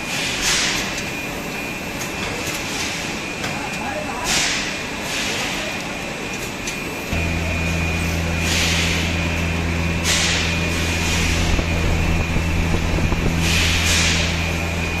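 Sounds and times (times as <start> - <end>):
packing machine humming: 0.0 - 15.0
high machine whine: 4.8 - 15.0
air hissing bursts: 7.2 - 14.8.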